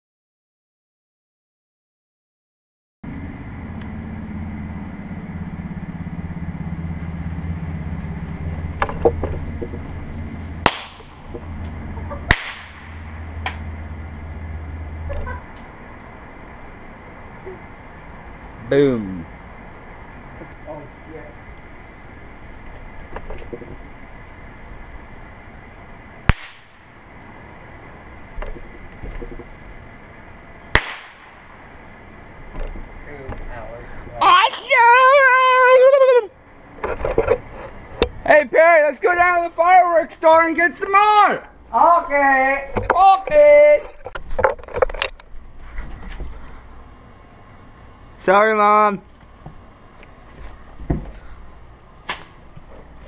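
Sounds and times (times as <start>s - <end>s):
steady low hum: 3.0s - 53.0s
firecracker crackles and bangs: 10.6s - 11.5s, 12.2s - 13.7s, 26.2s - 27.0s, 30.7s - 31.6s.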